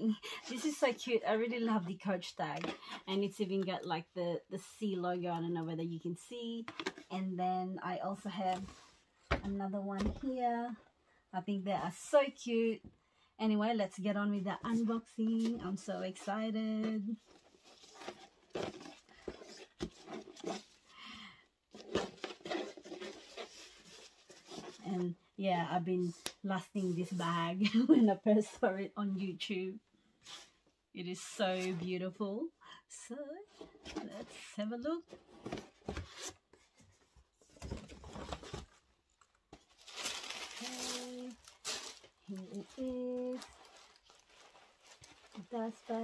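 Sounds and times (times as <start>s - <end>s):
ribbon rustling: 39.3s - 46.0s.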